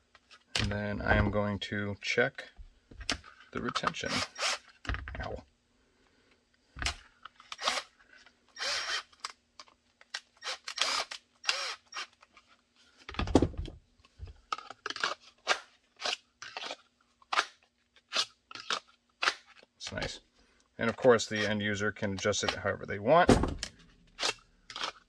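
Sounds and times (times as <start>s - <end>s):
plastic holster clicks and scrapes: 14.4s - 20.0s, 23.6s - 25.0s
heavy thump: 23.3s - 23.7s.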